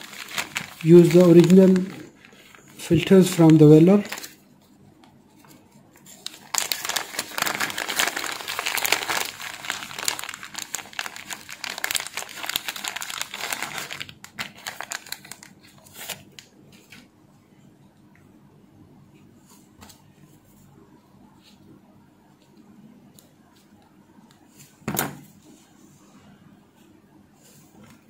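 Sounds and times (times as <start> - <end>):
plastic bag crinkling: 0.0 - 4.4, 6.0 - 16.3.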